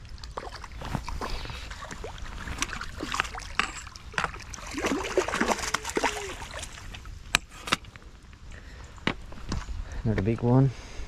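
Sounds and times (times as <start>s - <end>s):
water gurgling: 0.0s - 7.4s
water splashing and sloshing: 0.0s - 9.8s.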